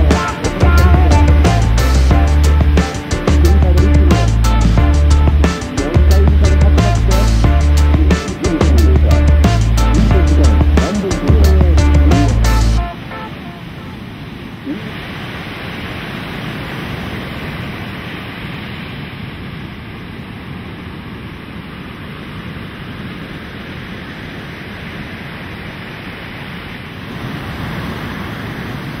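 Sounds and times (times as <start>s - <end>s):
ocean surf breaking: 0.0s - 29.0s.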